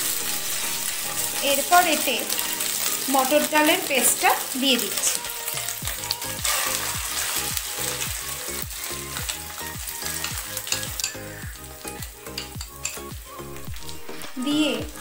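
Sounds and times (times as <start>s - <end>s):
hot oil sizzling: 0.0s - 15.0s
background music with low beat: 5.3s - 15.0s.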